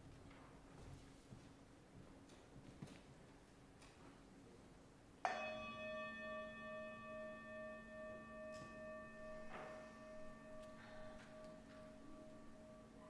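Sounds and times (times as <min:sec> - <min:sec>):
singing bowl ringing: 0:05.3 - 0:13.0.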